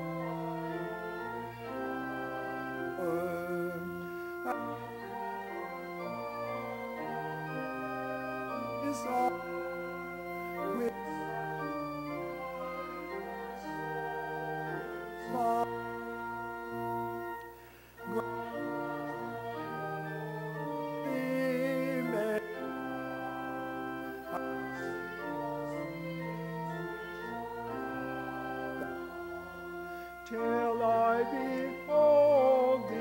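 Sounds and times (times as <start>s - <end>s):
church organ chords: 0.0s - 33.0s.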